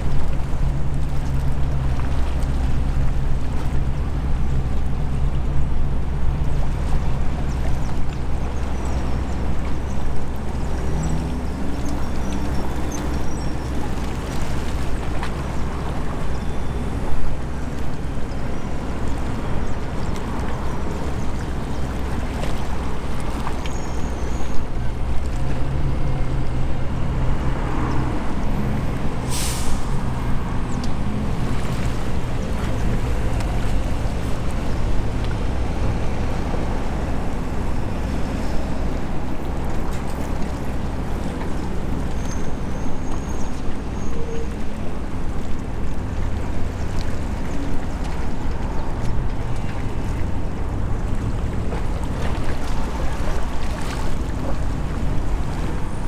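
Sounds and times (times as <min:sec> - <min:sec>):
tugboat diesel engines rumbling: 0:00.0 - 0:56.0
short sharp hiss: 0:29.3 - 0:29.9.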